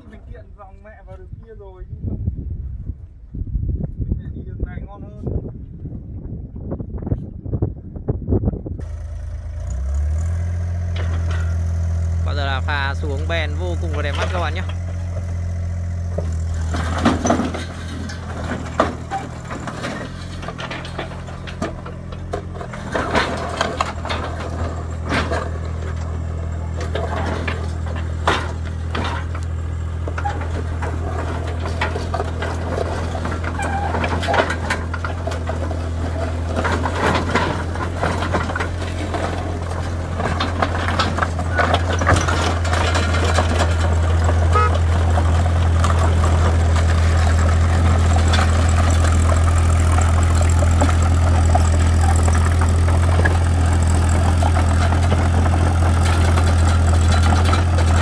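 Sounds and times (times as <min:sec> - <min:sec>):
diesel engine running: 0:08.3 - 0:58.0
tracks clanking on steel ramps: 0:08.8 - 0:58.0.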